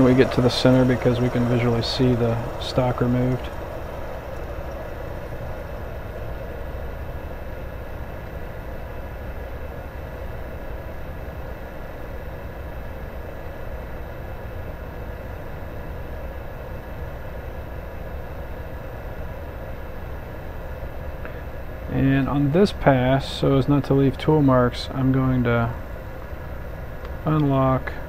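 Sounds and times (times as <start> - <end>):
lathe motor hum: 0.0 - 11.0.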